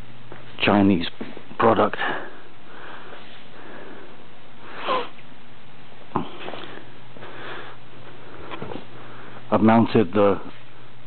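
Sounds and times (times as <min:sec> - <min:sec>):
room noise hiss: 0:00.0 - 0:11.0
person sniffing: 0:04.7 - 0:05.2.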